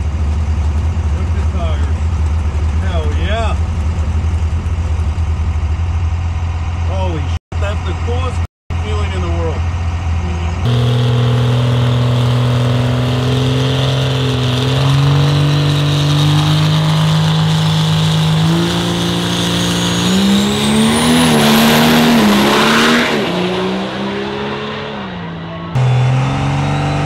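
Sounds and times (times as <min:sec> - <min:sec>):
diesel truck engine revving: 0:00.0 - 0:27.0
truck launching and accelerating: 0:10.5 - 0:27.0.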